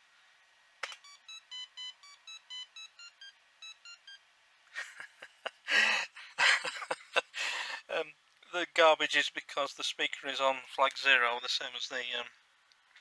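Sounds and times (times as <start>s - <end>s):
buzzy beeped tune: 1.0s - 4.2s.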